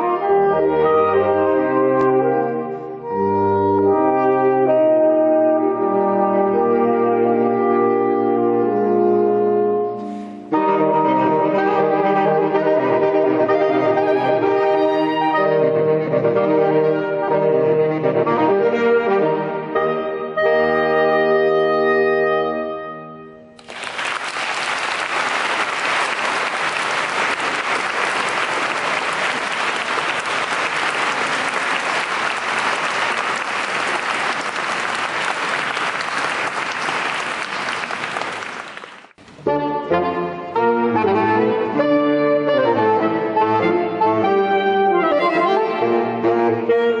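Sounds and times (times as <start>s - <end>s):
saxophone quartet playing: 0.0s - 23.0s, 39.3s - 47.0s
audience applause: 23.6s - 39.2s.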